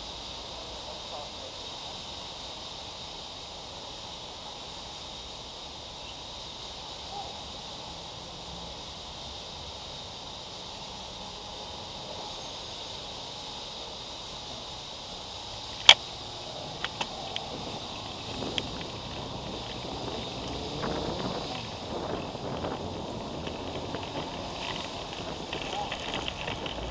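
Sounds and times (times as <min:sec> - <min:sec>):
street traffic hum: 0:00.0 - 0:26.9
sharp loud click: 0:15.8 - 0:16.1.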